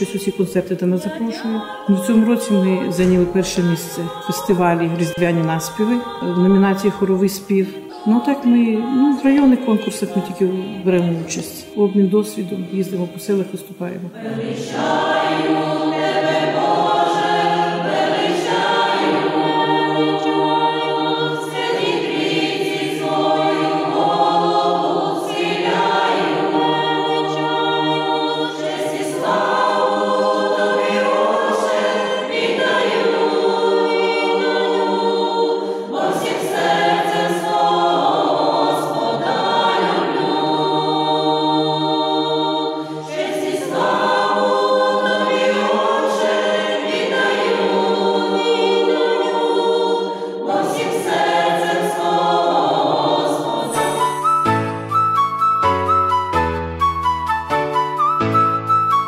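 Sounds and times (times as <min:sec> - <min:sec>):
women's choir singing: 0:00.0 - 0:54.3.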